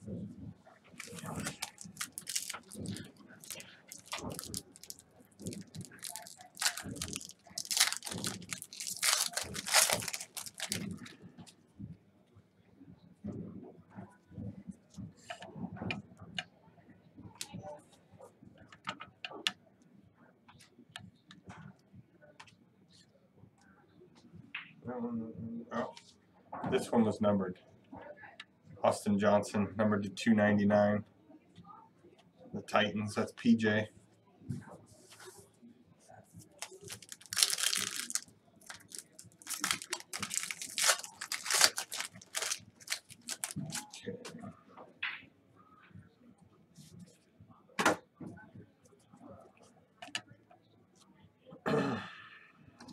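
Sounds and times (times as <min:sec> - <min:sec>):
foil wrappers crinkling: 0:01.0 - 0:11.1, 0:36.6 - 0:44.0.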